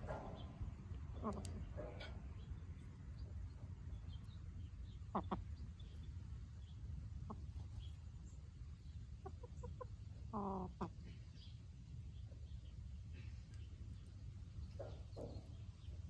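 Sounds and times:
hens clucking: 0.0 - 6.1, 7.1 - 11.5.

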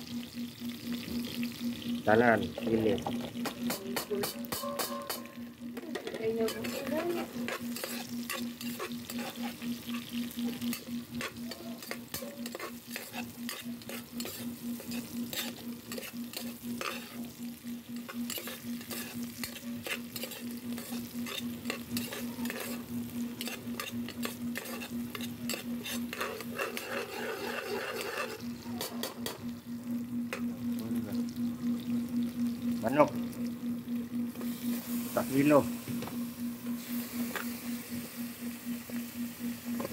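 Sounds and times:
aromatics sizzling in oil: 0.0 - 39.9
steady low hum: 0.0 - 39.9
metal spatula scraping pot: 4.2 - 17.3, 18.0 - 29.4.

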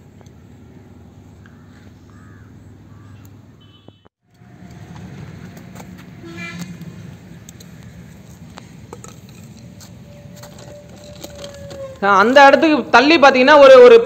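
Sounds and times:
low outdoor rumble: 4.3 - 13.0.

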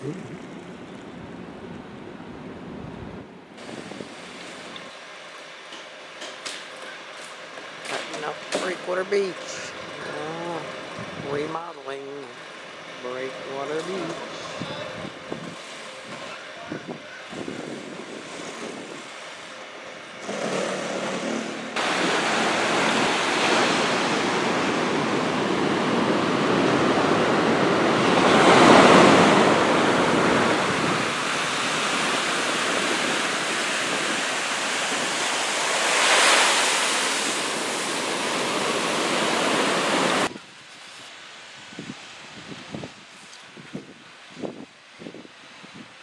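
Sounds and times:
outdoor ambience: 0.0 - 46.0
ocean surf breaking: 7.6 - 40.3.

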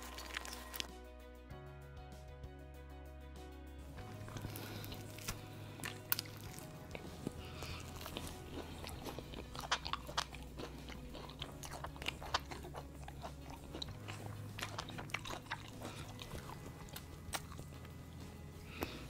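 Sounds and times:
crisp crackles of breading: 0.0 - 0.9
person chewing crispy food: 0.0 - 0.9, 4.0 - 19.0.

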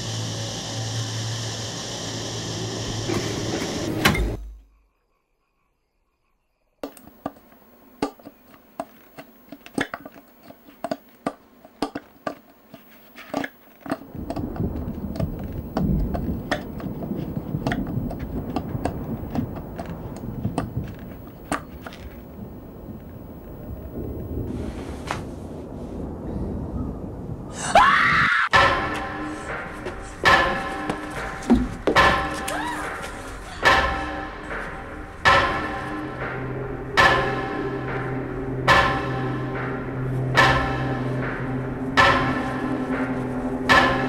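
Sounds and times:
steady noise: 0.0 - 4.4, 6.8 - 27.6, 28.5 - 44.0
irregular knocks and thuds: 6.8 - 24.5, 28.6 - 44.0
low rumbling noise: 13.9 - 32.3, 32.9 - 44.0.

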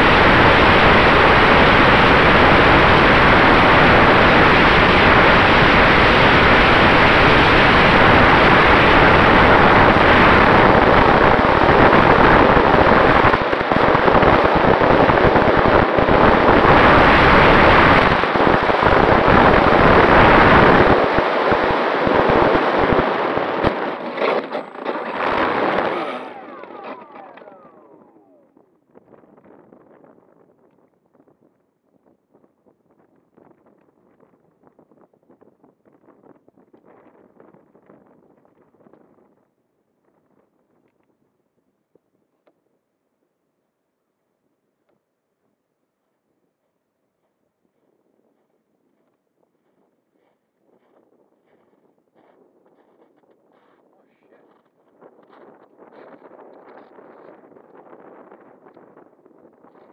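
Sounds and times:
model plane propeller: 0.0 - 31.4, 50.4 - 59.9
wind rushing over microphone: 0.0 - 40.8, 48.0 - 59.9.

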